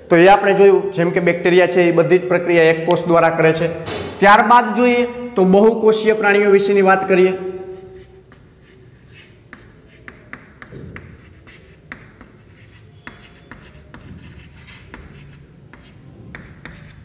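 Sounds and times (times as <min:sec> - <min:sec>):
chalk tapping and scratching: 0:07.6 - 0:17.0.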